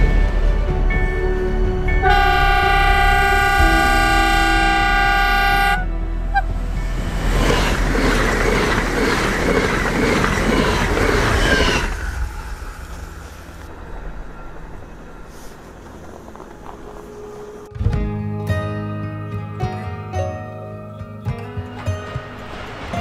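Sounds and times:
train rushing past: 0:00.0 - 0:17.8, 0:21.7 - 0:23.0
train horn: 0:02.0 - 0:06.5.

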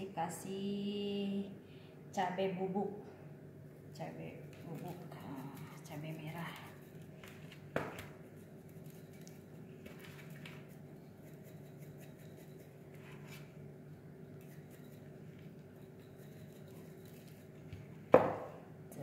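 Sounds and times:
steady low hum: 0:00.0 - 0:19.0
spice jar shaking: 0:10.2 - 0:12.8, 0:14.3 - 0:17.6.

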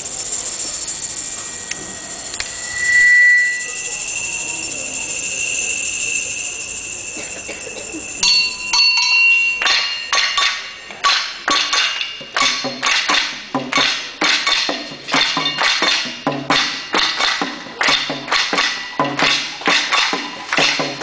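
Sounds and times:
high metallic ringing tones: 0:00.0 - 0:13.4
struck percussion hits ringing: 0:00.6 - 0:21.0.

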